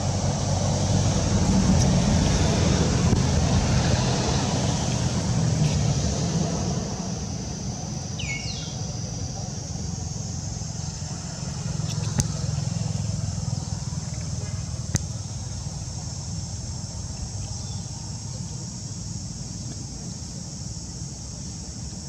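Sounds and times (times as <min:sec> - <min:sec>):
engine rumble: 0:00.0 - 0:22.0.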